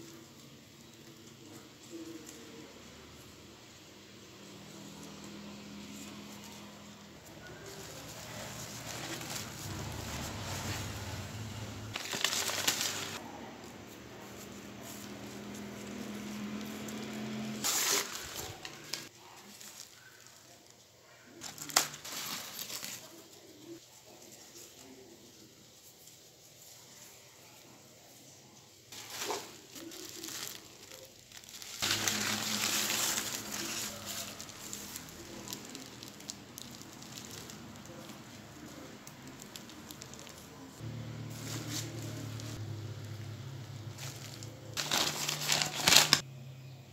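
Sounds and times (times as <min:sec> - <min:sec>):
leaves rustling: 0:00.0 - 0:28.2, 0:28.9 - 0:46.3
plastic wrapping crinkling: 0:04.7 - 0:13.2, 0:14.3 - 0:23.8, 0:28.9 - 0:42.6, 0:43.9 - 0:46.3.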